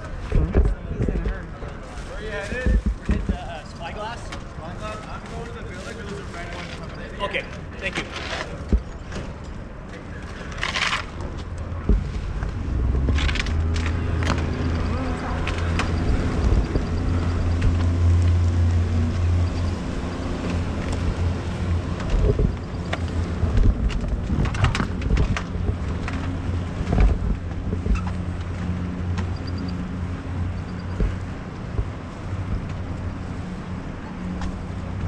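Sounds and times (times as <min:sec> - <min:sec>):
ferry engine humming: 0:00.0 - 0:35.0
knocks and clicks: 0:11.2 - 0:33.2.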